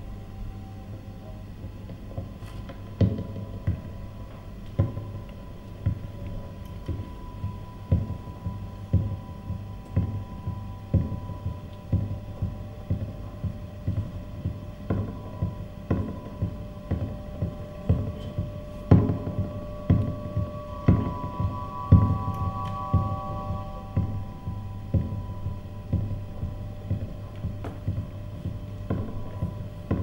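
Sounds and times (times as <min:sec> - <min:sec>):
steady low hum: 0:00.0 - 0:30.0
low pulsing thuds: 0:01.6 - 0:30.0
faint held high tone: 0:17.2 - 0:28.6.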